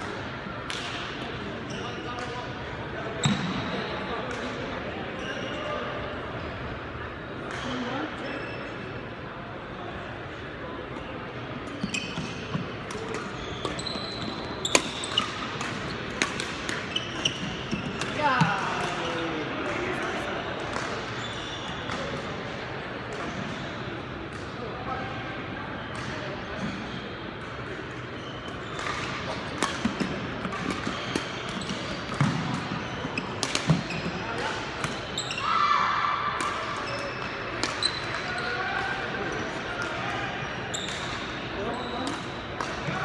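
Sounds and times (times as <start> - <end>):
shoes squeaking on wooden floor: 11.8 - 12.6, 13.4 - 15.2
racket striking shuttlecock: 14.7 - 16.9, 28.8 - 32.7.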